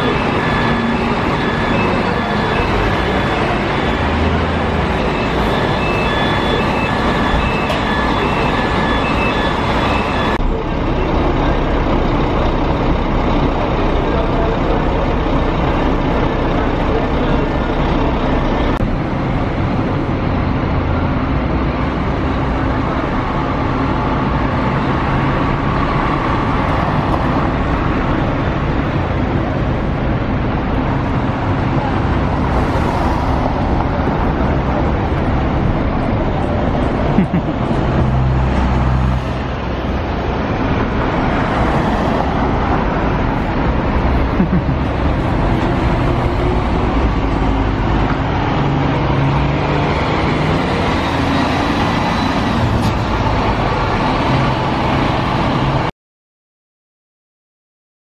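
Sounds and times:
repeated beeping: 0.0 - 11.2
bus diesel engine running: 0.0 - 55.9
traffic noise: 0.0 - 55.9.

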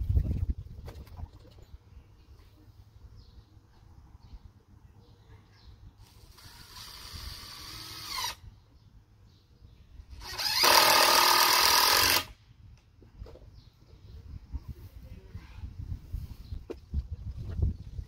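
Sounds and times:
power tool motor whirring: 6.1 - 8.4, 10.1 - 12.3.

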